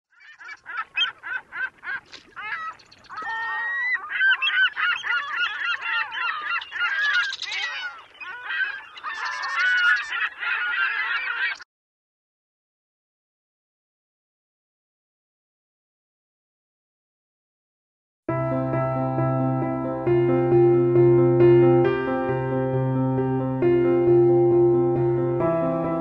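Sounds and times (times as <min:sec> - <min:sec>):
gulls calling: 0:00.1 - 0:11.7.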